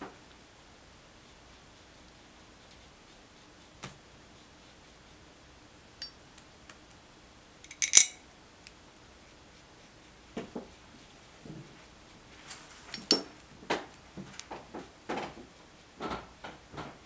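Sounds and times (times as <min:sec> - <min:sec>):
brush clinking in glass water jar: 0:07.7 - 0:08.2.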